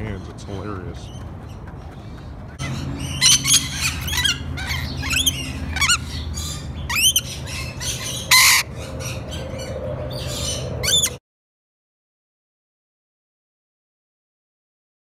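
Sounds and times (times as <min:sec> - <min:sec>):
lorikeets chattering and squawking: 0:00.0 - 0:11.2.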